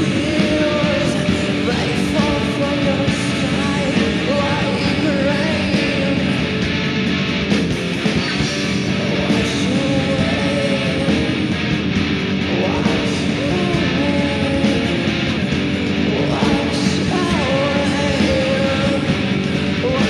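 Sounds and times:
rock band playing: 0:00.0 - 0:20.0.

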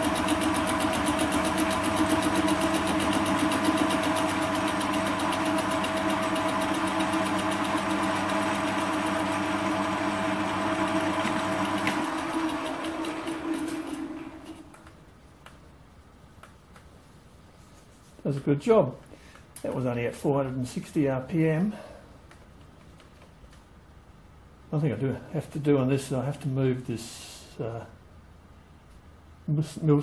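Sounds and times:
lathe cutter ticking: 0:00.0 - 0:14.6
lathe motor running: 0:00.0 - 0:14.8.

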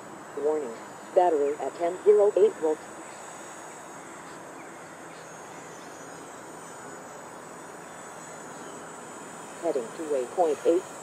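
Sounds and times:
distant drone flying: 0:00.0 - 0:11.0.

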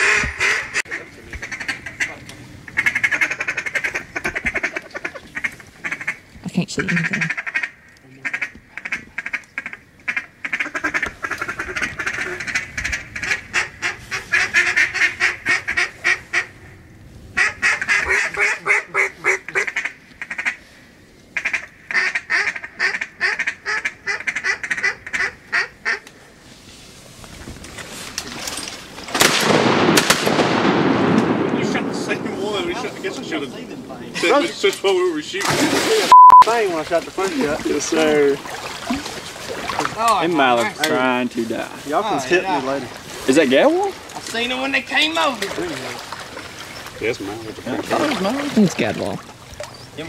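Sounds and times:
ducks quacking: 0:00.0 - 0:16.7, 0:17.3 - 0:20.6, 0:21.4 - 0:26.0.

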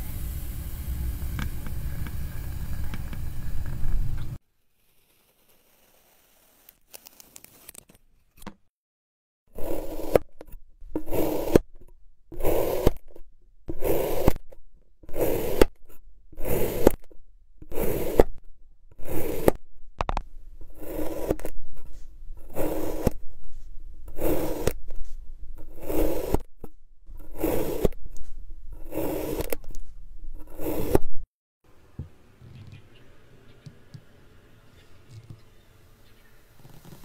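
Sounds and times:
knife cutting through clay: 0:09.6 - 0:11.7, 0:12.3 - 0:14.5, 0:15.1 - 0:18.4, 0:19.0 - 0:19.6, 0:20.6 - 0:31.1.

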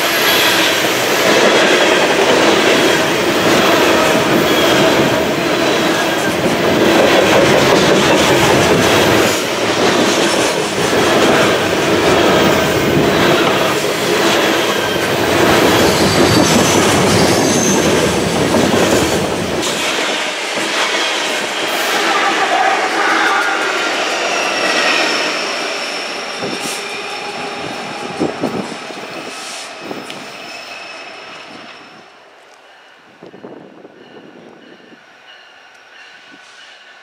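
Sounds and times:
rhythmic clickety-clack over rail joints: 0:00.0 - 0:37.0
train wheels rumbling on rails: 0:00.0 - 0:37.0
faint high wheel squeal: 0:29.0 - 0:32.2.

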